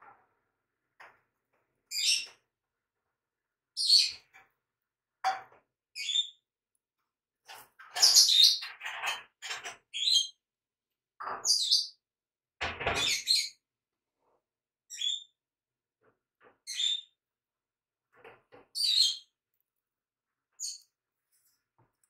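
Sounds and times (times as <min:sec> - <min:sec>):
bird chirping: 0:03.8 - 0:04.3, 0:06.0 - 0:06.4, 0:09.9 - 0:10.4, 0:11.2 - 0:12.0, 0:14.9 - 0:15.4, 0:16.7 - 0:17.2, 0:18.8 - 0:19.3, 0:20.6 - 0:20.9.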